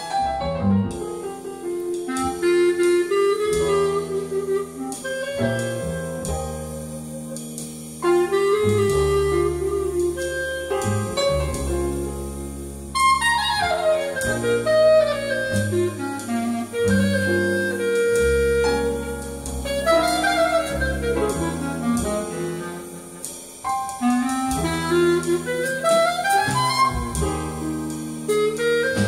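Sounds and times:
jazz over loudspeakers: 0.0 - 29.0
low bass notes: 0.0 - 29.0
wind instrument melody: 0.0 - 29.0.

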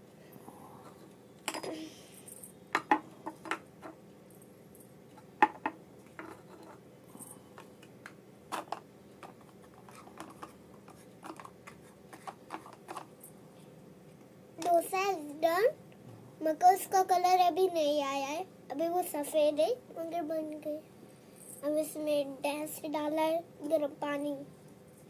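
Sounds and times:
plastic toys clicking and knocking: 2.3 - 4.0, 5.4 - 6.8, 7.6 - 13.2.

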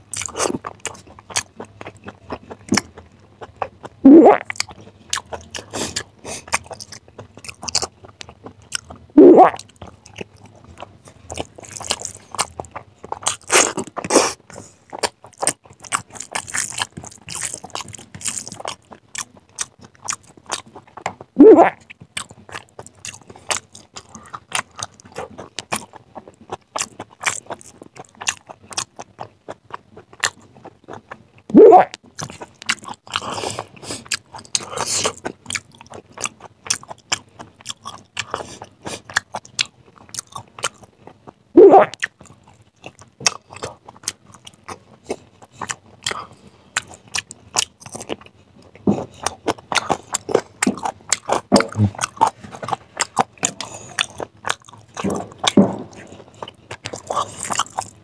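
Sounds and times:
wet chewing and lip-smacking: 0.0 - 58.0
loud wet mouth sounds: 4.0 - 4.6, 9.2 - 9.7, 21.4 - 21.8, 31.5 - 32.0, 41.6 - 42.0, 51.5 - 52.4.

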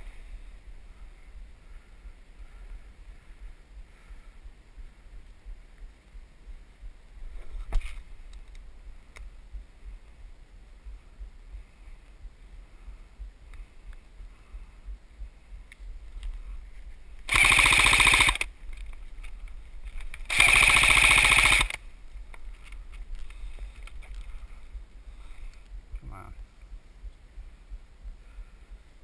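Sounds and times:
airsoft rifle full-auto bursts: 17.3 - 18.5, 20.3 - 21.8.

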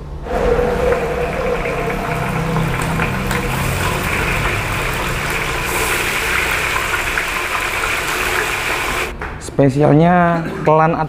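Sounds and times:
gas burner rumble: 0.0 - 9.1
food sizzling in hot oil: 0.9 - 9.1.

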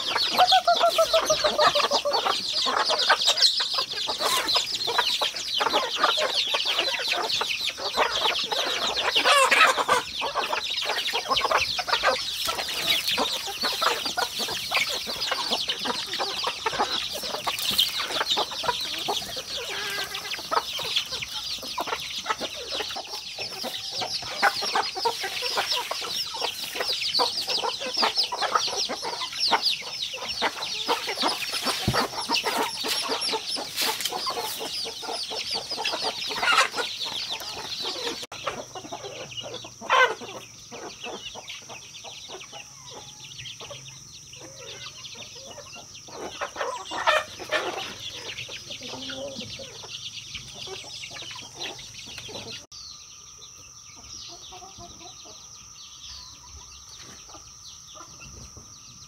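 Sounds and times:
chicken call: 0.0 - 40.4
chickens clucking: 0.0 - 59.0.

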